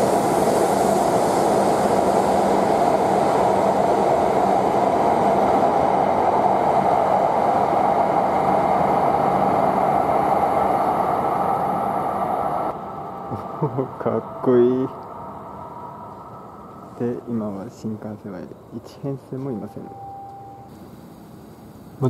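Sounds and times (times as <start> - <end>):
train pulling out: 0.0 - 22.0
low hum: 9.1 - 17.3.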